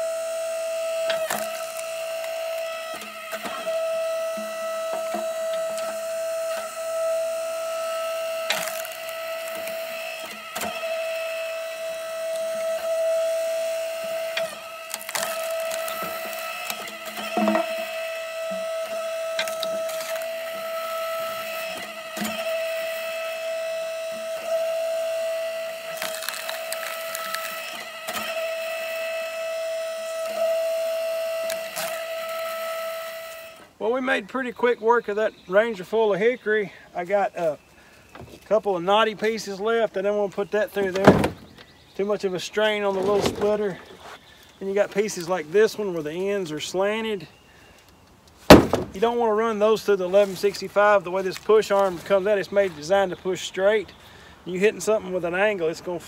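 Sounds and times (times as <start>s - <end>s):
log splitter whining: 0.0s - 56.0s
wood splitting cracks: 0.8s - 7.0s, 8.4s - 11.4s, 14.0s - 23.8s, 24.5s - 33.5s, 40.8s - 41.7s, 48.3s - 49.2s.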